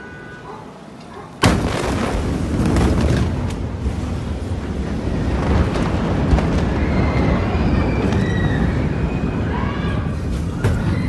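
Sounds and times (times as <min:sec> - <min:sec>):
explosion blast: 0:01.4 - 0:11.0
loud rumble: 0:01.4 - 0:11.0.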